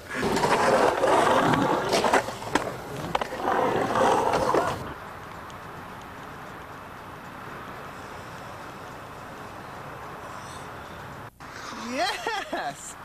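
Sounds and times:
skateboard clacks: 0.0 - 6.1
skateboard wheels rolling: 0.0 - 11.9
low steady hiss: 0.0 - 13.0.

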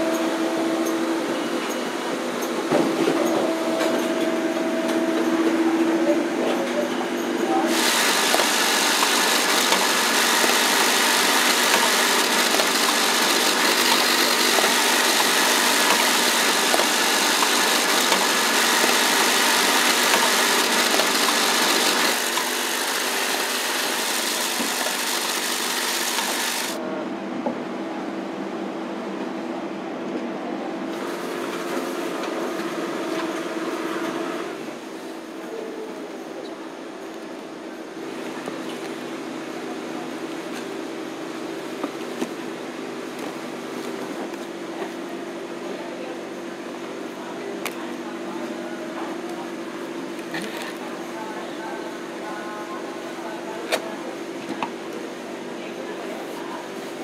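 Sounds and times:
machine hum: 3.3 - 29.3
banknotes rasping through rollers: 7.7 - 26.8.

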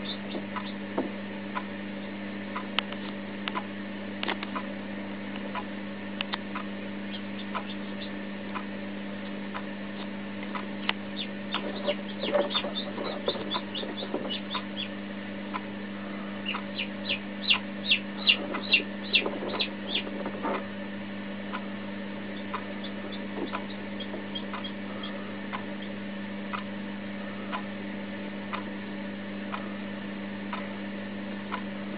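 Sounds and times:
chick peeping: 0.0 - 0.8, 7.0 - 8.6, 9.2 - 20.6, 22.2 - 26.6
steady low hum: 0.0 - 31.9.

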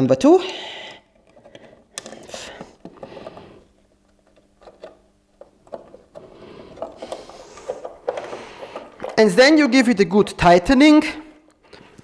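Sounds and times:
hands rustling on parts: 1.0 - 9.4.

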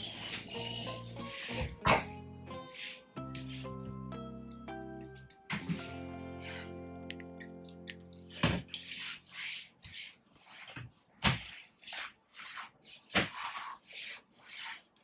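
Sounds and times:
mop swishing on floor: 5.5 - 6.2, 8.3 - 15.0.

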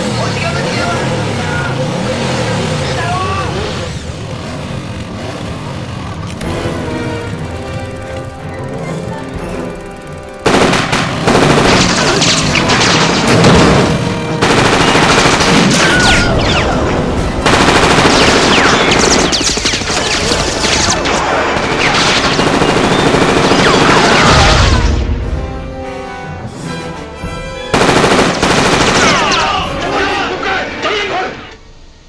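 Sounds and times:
rapid automatic gunfire: 10.3 - 16.8, 17.4 - 24.6, 27.7 - 29.6.

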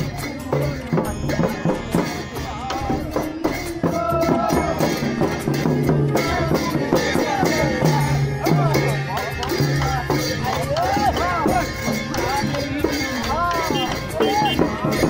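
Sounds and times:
drum beaten with stick: 0.0 - 15.0
hand cymbals clashing: 0.0 - 15.0
men singing and calling: 0.0 - 15.0.

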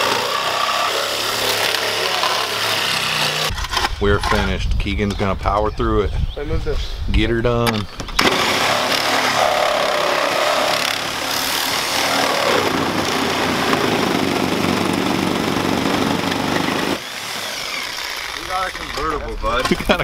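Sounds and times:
reciprocating saw cutting steel: 0.0 - 3.6, 8.2 - 19.2.

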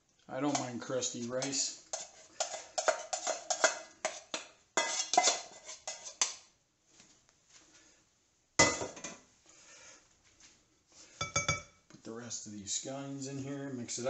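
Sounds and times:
spoon scraping a pot: 0.4 - 6.5.

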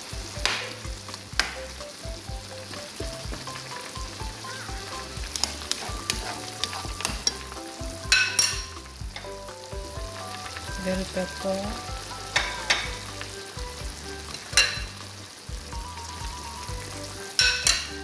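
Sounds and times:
sauce bubbling and sizzling in pan: 0.0 - 18.0
soft background music with beat: 0.0 - 18.0.

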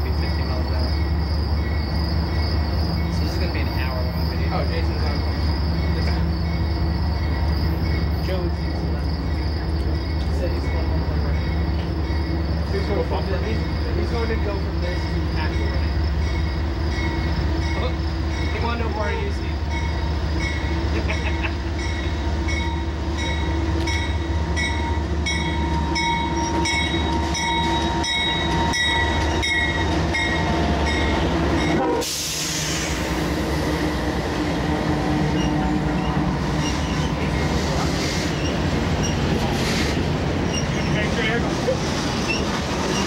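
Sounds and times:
freight cars rolling: 0.0 - 43.0
locomotive engines: 0.0 - 43.0
train bell ringing: 10.0 - 32.0
wheel squeal: 35.3 - 41.3, 42.1 - 43.0.

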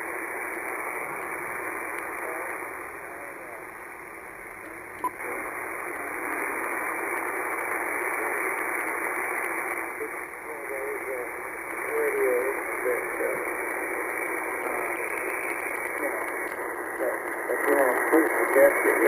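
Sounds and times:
radio static hiss: 0.0 - 19.0
faint voice on radio: 1.8 - 3.8, 5.1 - 5.6, 7.8 - 19.0.

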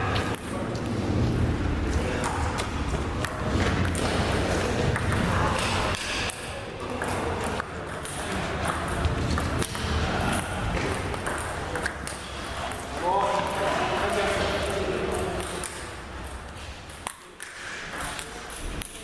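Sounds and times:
low rumble of hall: 0.0 - 7.7
table tennis ball clicking: 5.9 - 12.9.

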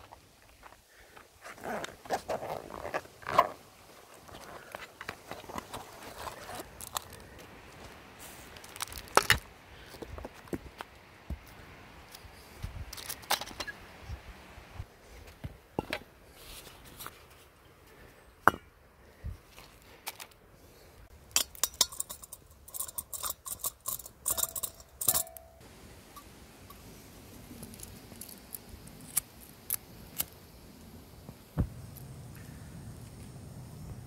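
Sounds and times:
metal clicks and clinks of camping stove: 21.2 - 26.9.

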